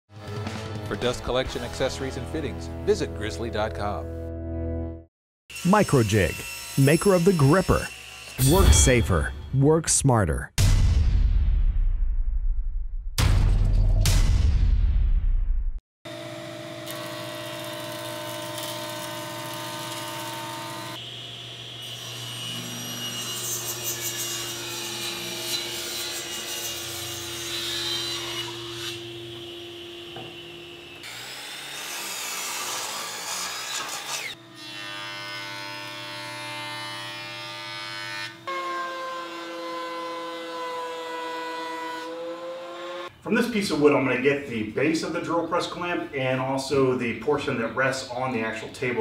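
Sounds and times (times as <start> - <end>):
table saw ripping a board: 5.5 - 8.6, 16.7 - 21.0, 21.8 - 43.1
thickness planer running: 16.1 - 23.2.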